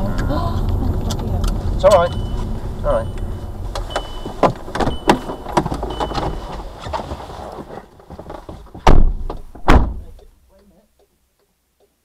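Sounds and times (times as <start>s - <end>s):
car cabin rumble: 0.0s - 10.3s
short high beep: 2.0s - 6.5s
loud knocks: 8.4s - 10.1s.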